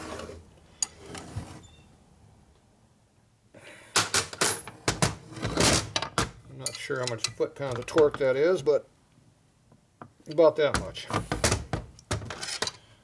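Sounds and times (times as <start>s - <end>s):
wrenches clinking on metal nuts: 5.9s - 8.2s.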